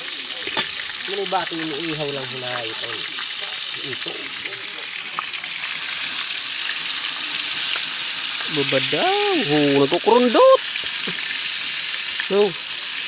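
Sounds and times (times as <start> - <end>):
fish frying in hot oil: 0.0 - 13.0
person's voice: 8.5 - 10.6.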